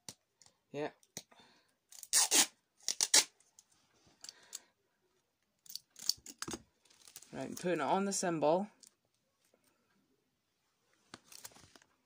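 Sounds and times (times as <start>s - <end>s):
sticky tape pulled off roll: 1.9s - 3.4s.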